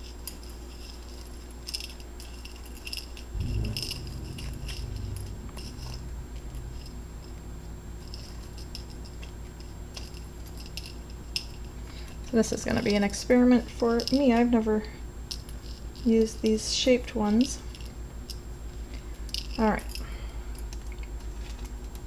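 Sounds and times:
candy sprinkles rattling in a bowl: 0.0 - 7.4, 8.0 - 22.0
dull low rumble: 3.3 - 12.1.

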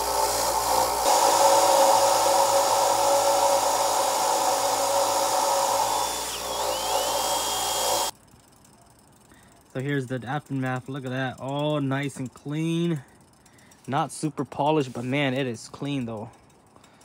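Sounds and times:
motor hum: 0.0 - 8.1
wire wheel whirring hiss: 0.0 - 8.1.

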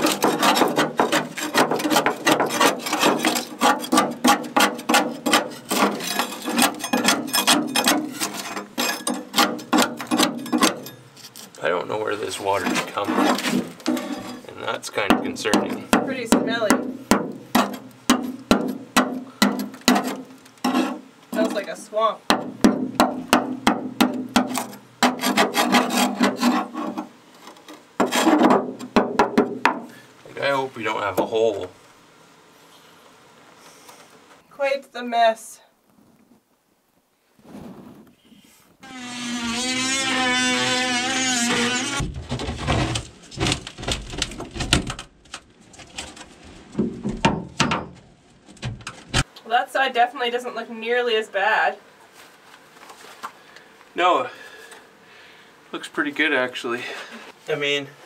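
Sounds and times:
steel bar scraping wood off metal: 0.0 - 11.6, 12.3 - 14.5, 19.5 - 21.7, 24.4 - 29.0, 38.8 - 45.0.

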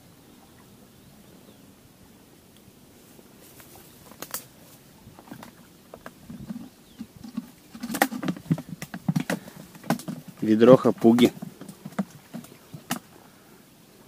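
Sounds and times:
handling clicks and taps: 5.4 - 13.0.

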